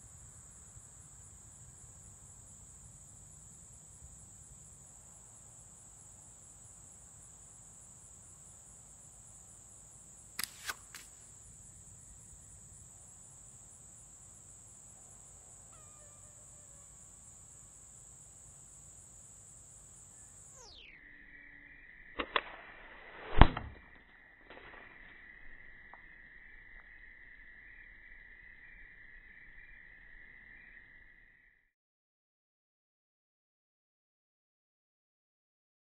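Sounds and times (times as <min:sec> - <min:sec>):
insects trilling: 0:00.0 - 0:31.5
slingshot shots hitting target: 0:10.4 - 0:11.2, 0:22.2 - 0:24.9.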